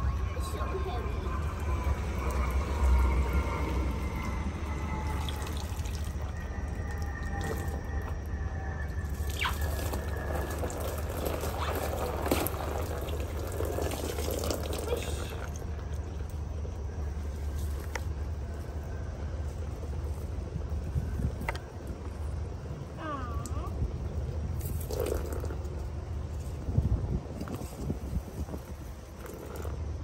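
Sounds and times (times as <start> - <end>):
low rumble: 0.0 - 30.0
water splashing and dripping: 1.3 - 8.2, 8.9 - 16.4.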